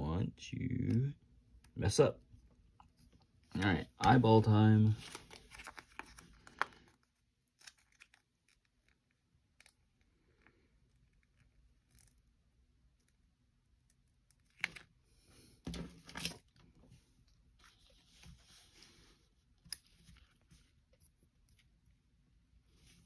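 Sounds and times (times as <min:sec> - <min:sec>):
sticker crinkling and peeling: 0:05.0 - 0:14.9.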